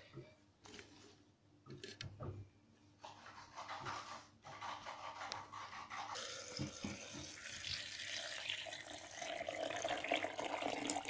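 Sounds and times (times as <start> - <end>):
water pouring into plastic jar: 6.2 - 11.0.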